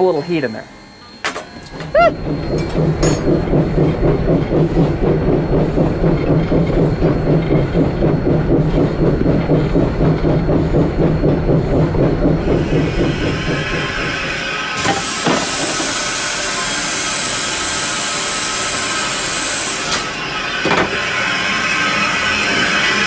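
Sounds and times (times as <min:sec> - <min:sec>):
steady low drone: 0:01.5 - 0:14.8
steam locomotive rhythmic beat: 0:01.8 - 0:19.7.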